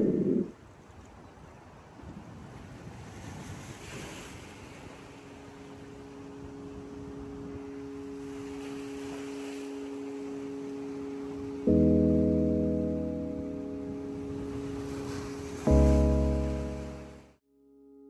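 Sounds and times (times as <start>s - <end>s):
surf washing onto beach: 1.9s - 12.0s, 12.6s - 17.2s
held low note: 9.7s - 18.0s.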